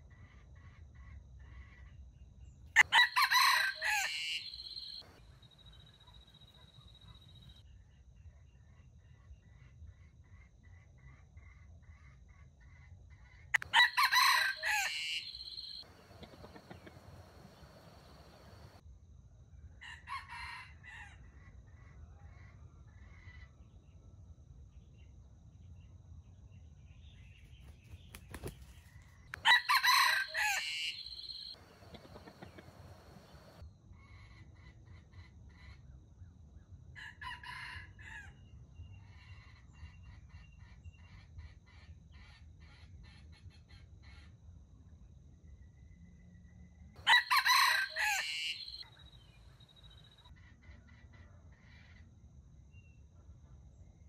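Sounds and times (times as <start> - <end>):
rooster crowing: 2.8 - 5.0, 13.6 - 18.8, 29.4 - 33.6, 47.0 - 48.8
small birds calling: 3.4 - 5.1, 13.6 - 18.8, 27.4 - 33.6, 47.0 - 50.1.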